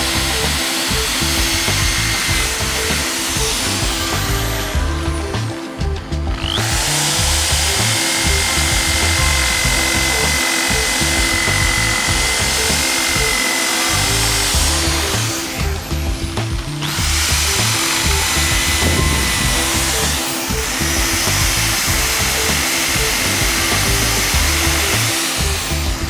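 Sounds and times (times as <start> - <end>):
background music: 0.0 - 26.0
wire wheel brush scrubbing metal: 6.4 - 26.0.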